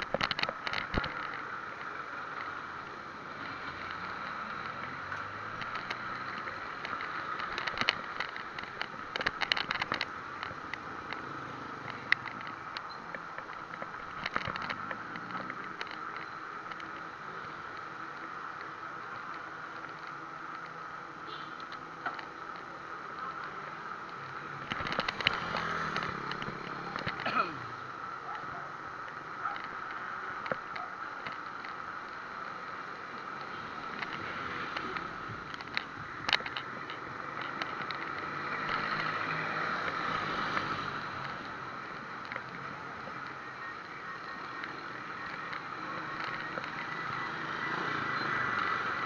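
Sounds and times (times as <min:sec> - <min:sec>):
wind and road noise: 0:00.0 - 0:49.0.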